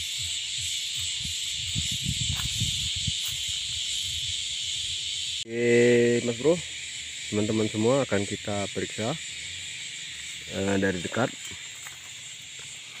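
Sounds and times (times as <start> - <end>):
insect chorus buzzing: 0.0 - 13.0
man talking: 5.5 - 6.7, 7.3 - 9.2, 10.5 - 11.5.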